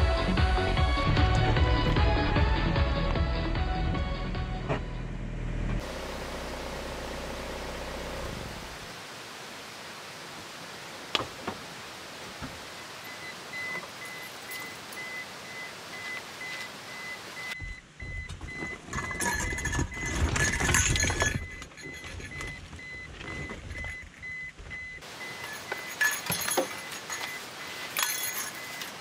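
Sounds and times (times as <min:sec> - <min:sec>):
car door warning chime: 0:13.0 - 0:19.5.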